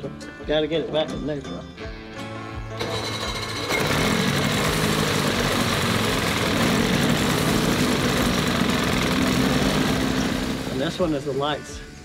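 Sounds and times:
outboard motor running: 2.8s - 11.4s
propeller churning water: 3.7s - 11.0s.

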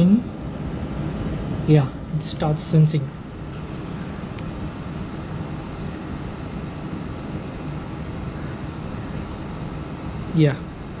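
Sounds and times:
even hiss: 7.7s - 11.0s.

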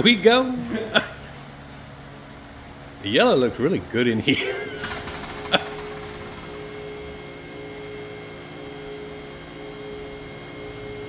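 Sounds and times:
hydraulic pump motor humming: 4.5s - 11.0s.

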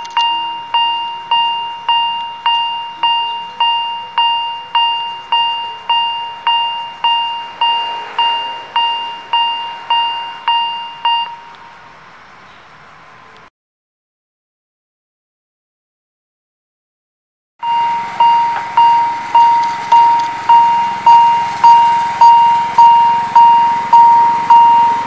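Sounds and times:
level-crossing warning bell ringing: 0.0s - 12.7s, 17.6s - 25.0s
faint background noise: 0.0s - 13.5s.

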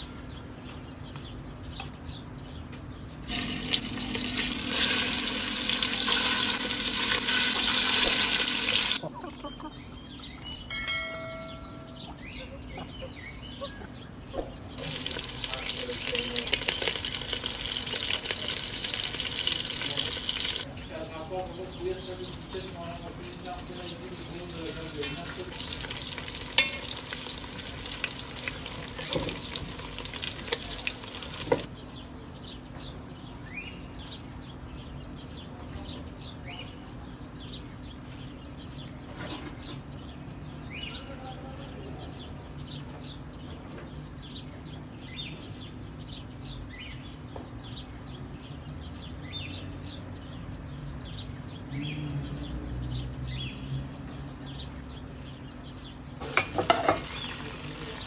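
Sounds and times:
chicken wings sizzling in oil: 3.3s - 9.0s, 14.8s - 20.7s, 22.4s - 31.7s, 56.2s - 58.0s
bird chirping: 8.0s - 58.0s
cookware clatter: 25.0s - 27.2s, 56.2s - 57.3s
spoon turning food in pot: 25.0s - 31.7s, 56.2s - 57.4s.

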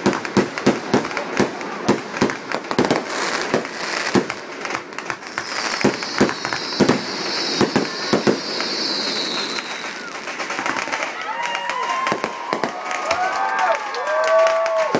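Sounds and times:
fireworks bangs: 0.0s - 14.9s
fireworks crackling: 0.0s - 14.9s
high hiss: 5.2s - 10.3s.

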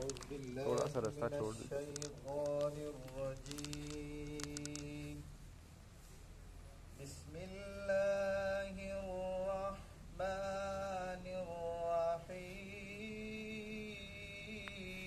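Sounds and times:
boy reciting melodically: 0.0s - 5.3s.

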